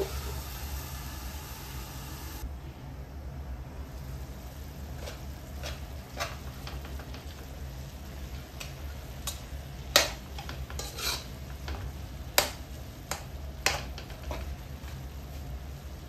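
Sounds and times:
spatula scraping metal wok: 10.3s - 11.6s.

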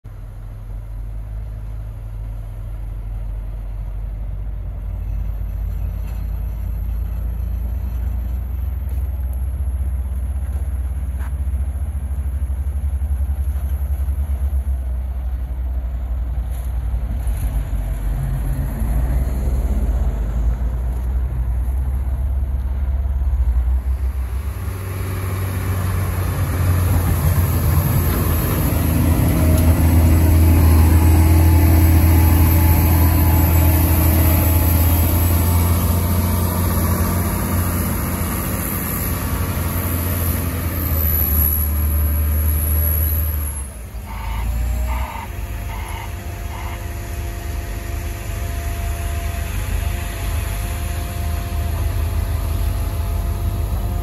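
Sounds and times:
heavy diesel engines rumbling: 0.1s - 54.0s
snow blower roaring: 23.6s - 54.0s.

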